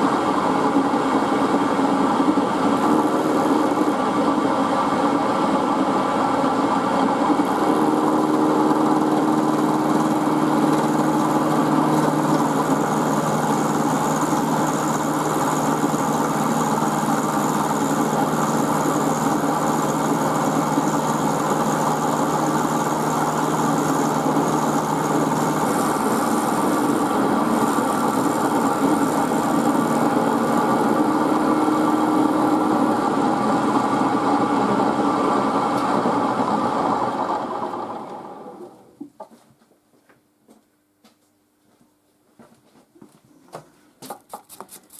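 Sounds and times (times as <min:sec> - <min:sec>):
milling machine cutting steel: 0:07.3 - 0:35.1.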